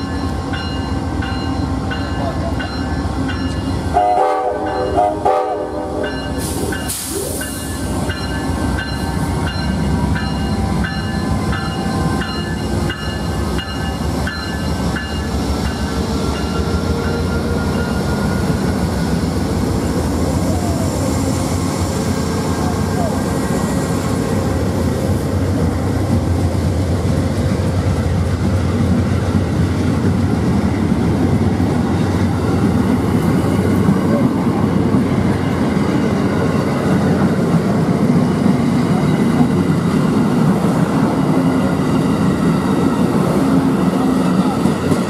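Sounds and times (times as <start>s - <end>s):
diesel locomotives rumbling: 0.0s - 45.0s
train horn blasts: 3.9s - 6.0s.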